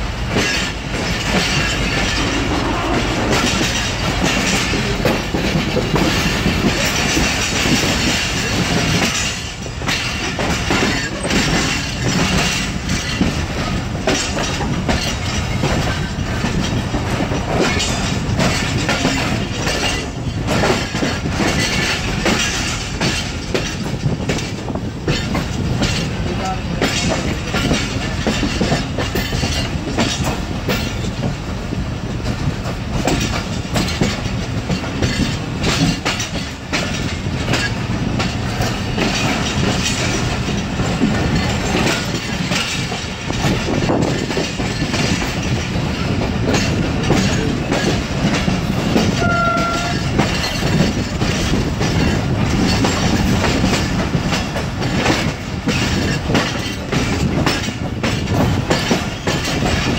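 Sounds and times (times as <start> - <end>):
steady train rumble: 0.0 - 59.9
train wheels clattering over rail joints: 0.0 - 59.9.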